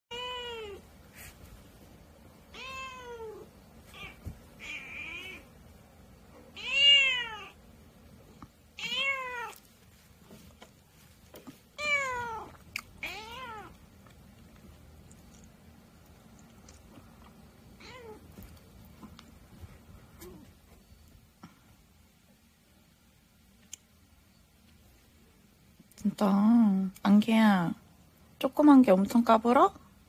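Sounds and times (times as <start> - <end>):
cat meowing: 0.1 - 0.8, 2.5 - 5.5, 6.6 - 7.6, 8.8 - 9.6, 11.8 - 13.8, 17.8 - 18.3.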